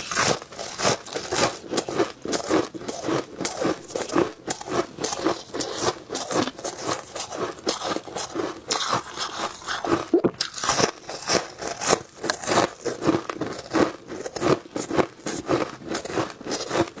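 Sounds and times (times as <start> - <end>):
ice being chewed: 0.0 - 17.0.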